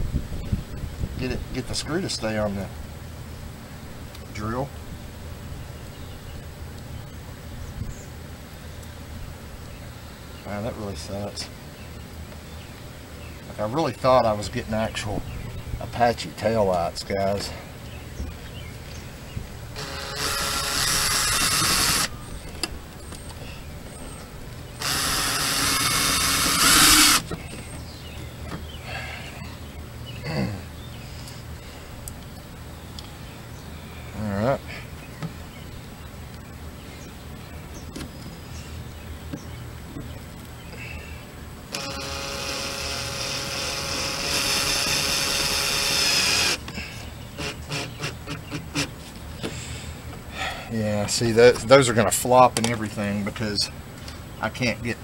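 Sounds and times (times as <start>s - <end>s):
power drill driving a screw: 19.8s - 22.1s, 24.8s - 27.3s, 41.7s - 46.6s, 47.4s - 48.9s.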